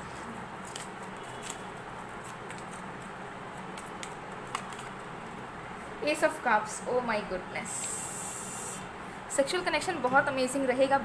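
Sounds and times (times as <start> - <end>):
cards clicking and sliding: 0.6 - 5.1.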